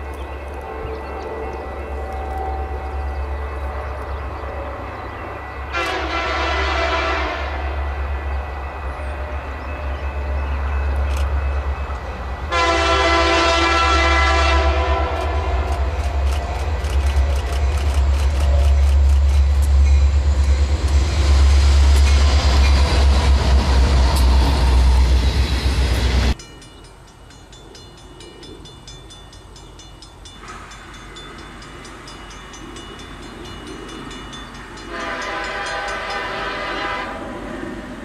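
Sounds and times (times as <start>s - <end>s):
diesel freight train rumble: 0.0s - 38.0s
rail noise: 0.0s - 38.0s
locomotive air horn: 5.6s - 7.9s, 12.5s - 15.9s, 34.9s - 37.4s.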